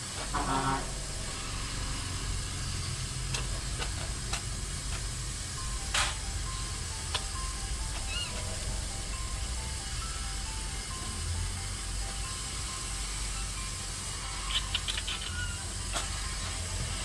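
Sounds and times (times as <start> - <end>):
sharp hiss of air: 0.0 - 7.5
steady background hiss: 0.0 - 17.0.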